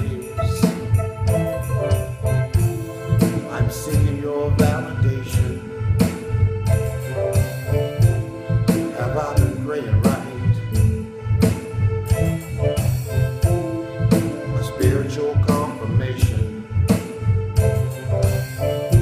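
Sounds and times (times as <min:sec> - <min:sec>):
man singing: 0:00.0 - 0:00.9, 0:03.0 - 0:05.8, 0:08.7 - 0:10.9, 0:14.4 - 0:16.7
bass line: 0:00.0 - 0:19.0
instrumental accompaniment: 0:00.0 - 0:19.0
percussion hits: 0:00.0 - 0:19.0.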